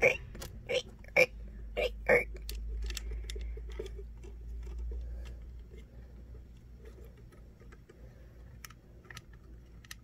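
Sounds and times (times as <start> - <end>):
low steady hum: 0.0 - 10.0
plastic bricks clicking: 2.2 - 5.9, 6.5 - 10.0.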